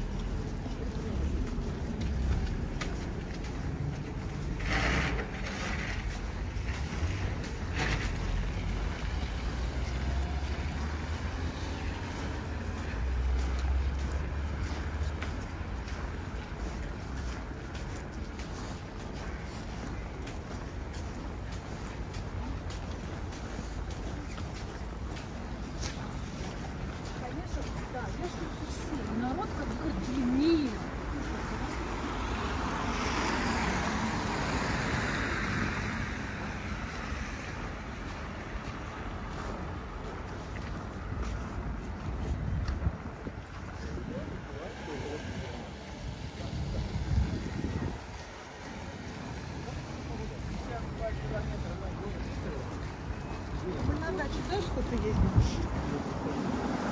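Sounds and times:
low rumble of traffic: 0.0 - 56.9
wind on microphone: 46.0 - 48.4.

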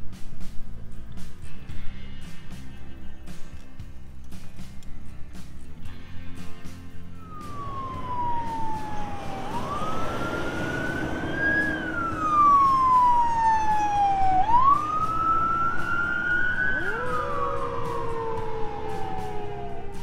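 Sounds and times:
low road noise: 0.0 - 20.0
second siren tone: 7.2 - 20.0
siren wailing: 7.2 - 20.0.

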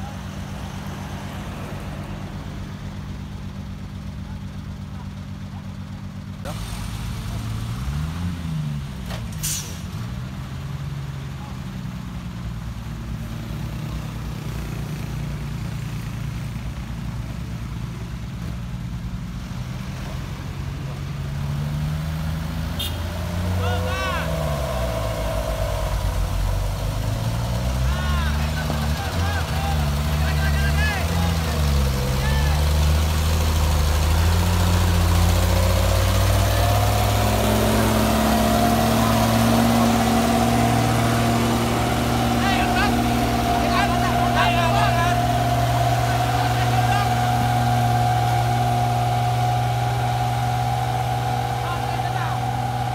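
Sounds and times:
diesel truck engines droning: 0.0 - 52.9.

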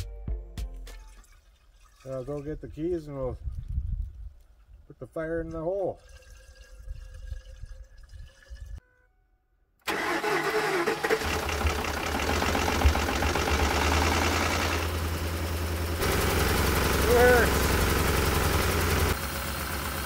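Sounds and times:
engine cranking and idling: 9.8 - 20.0.

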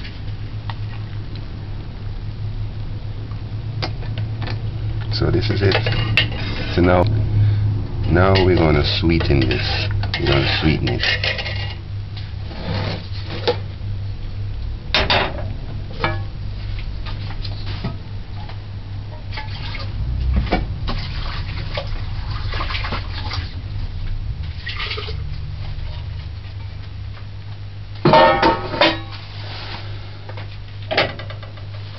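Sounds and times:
steady low hum: 0.0 - 31.9
liquid sloshing: 19.2 - 26.6.

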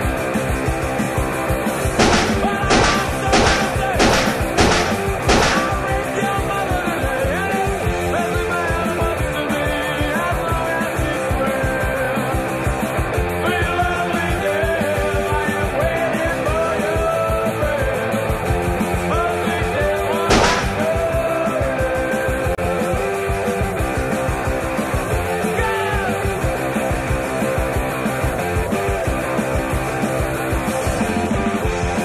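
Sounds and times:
punk rock music: 1.6 - 21.7
sharp crash: 2.0 - 6.0, 20.3 - 21.1.

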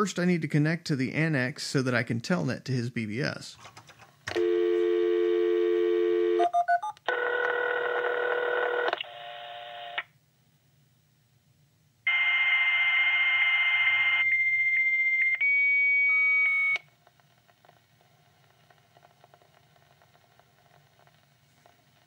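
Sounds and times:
dial tone: 4.3 - 10.0
high steady modem tone with hiss: 4.4 - 10.2, 12.0 - 22.0.

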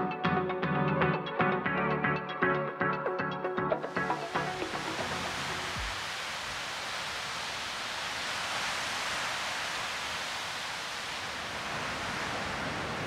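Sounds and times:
waves breaking on shore: 3.8 - 13.0.

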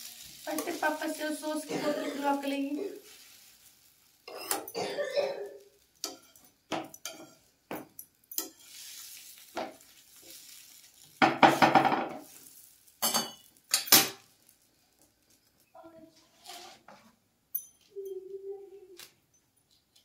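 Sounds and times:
metal spatula scraping griddle: 0.0 - 4.8, 5.4 - 7.5, 8.3 - 14.2, 16.2 - 17.2
faint sizzle: 0.0 - 19.3.

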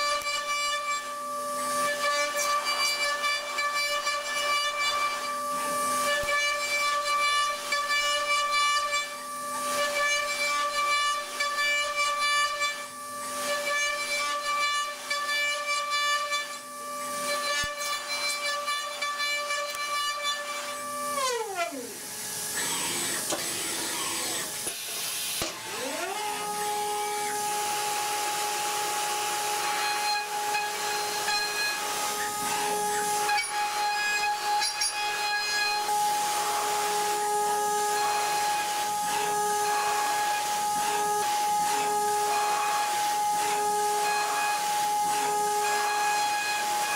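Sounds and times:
hiss of cutting metal: 21.8 - 25.6, 27.1 - 46.9.

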